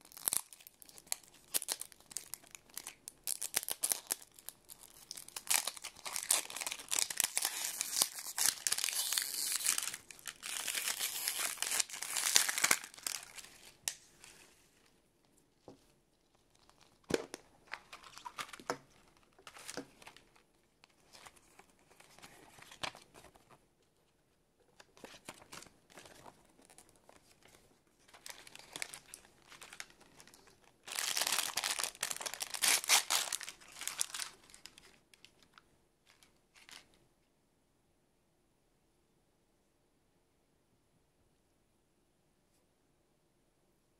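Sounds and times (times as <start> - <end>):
paper crinkling: 0.0 - 14.9, 16.3 - 23.6, 24.8 - 36.9.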